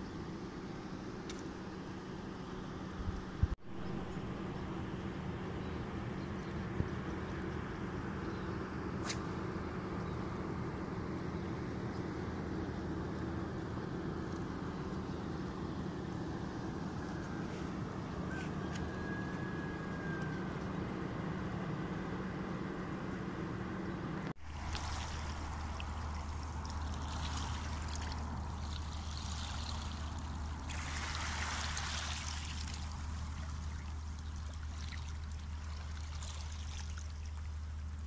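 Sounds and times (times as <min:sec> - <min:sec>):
low hum: 0:00.0 - 0:38.0
sea water lapping at shore: 0:24.4 - 0:38.0.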